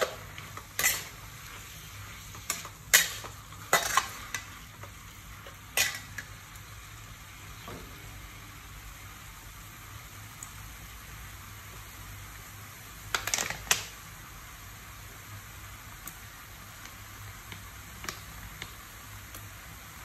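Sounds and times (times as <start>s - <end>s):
steady low hiss: 0.0s - 20.0s.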